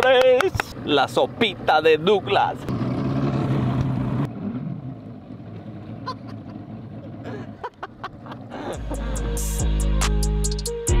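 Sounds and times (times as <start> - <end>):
motorboat engine rumble: 2.4 - 9.6
music with heavy bass: 8.7 - 11.0.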